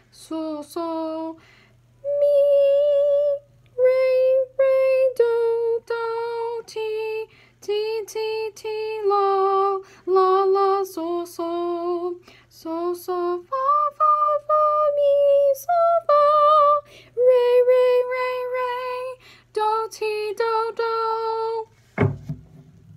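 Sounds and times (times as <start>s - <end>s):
woman singing unaccompanied: 0.0s - 1.4s, 2.0s - 21.7s.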